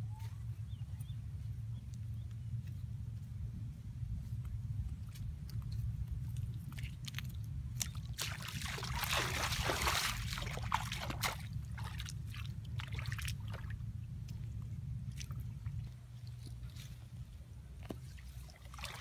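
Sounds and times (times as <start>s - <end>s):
low rumble: 0.0s - 19.0s
feet splashing in shallow water: 6.2s - 19.0s.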